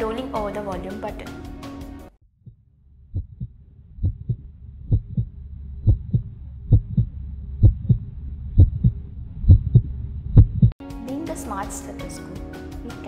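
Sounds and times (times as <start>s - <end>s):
low rumble: 2.2s - 10.8s
heartbeat through stethoscope: 2.4s - 10.8s.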